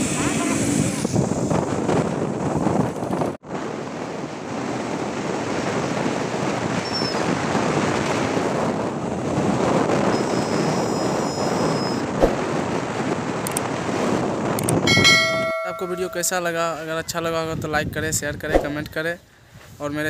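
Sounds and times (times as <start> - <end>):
motorcycle road noise: 0.0 - 15.9
wind rush: 0.0 - 18.9.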